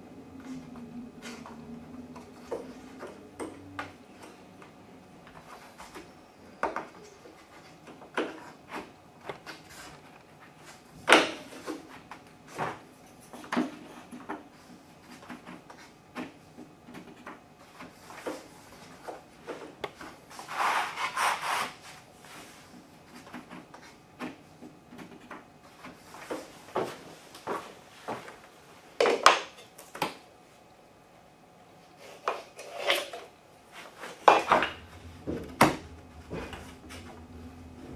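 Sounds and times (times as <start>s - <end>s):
scraping rub: 20.3s - 23.2s.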